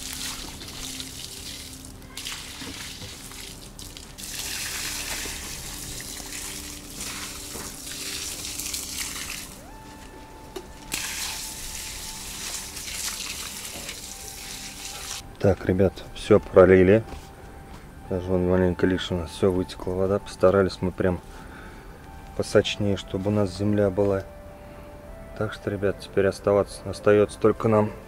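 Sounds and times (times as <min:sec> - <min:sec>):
water pouring onto soil: 0:00.0 - 0:09.6, 0:10.9 - 0:15.2.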